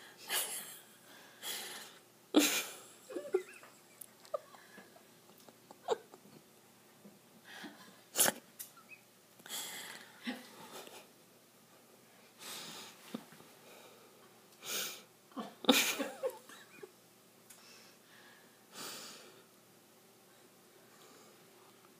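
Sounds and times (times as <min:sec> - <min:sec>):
person breathing in bursts: 0:01.0 - 0:02.1, 0:09.4 - 0:10.2, 0:12.3 - 0:13.0, 0:13.6 - 0:15.1, 0:17.5 - 0:19.6.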